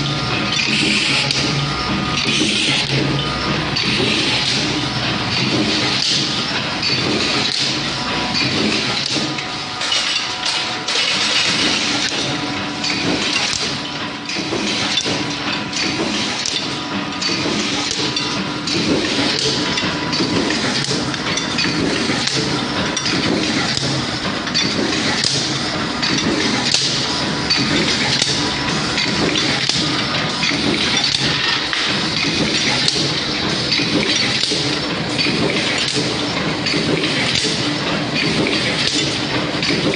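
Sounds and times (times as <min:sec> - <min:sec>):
machinery noise: 0:00.0 - 0:39.9
metal parts clinking and knocking: 0:09.8 - 0:39.9.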